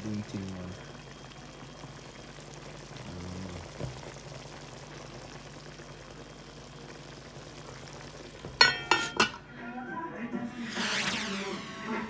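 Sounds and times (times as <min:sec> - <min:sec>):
pot bubbling: 0:00.0 - 0:09.5.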